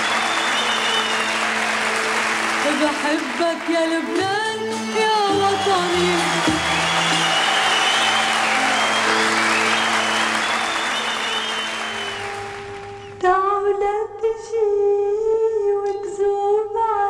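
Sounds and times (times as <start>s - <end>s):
applause: 0.0s - 13.2s
music: 0.0s - 17.0s.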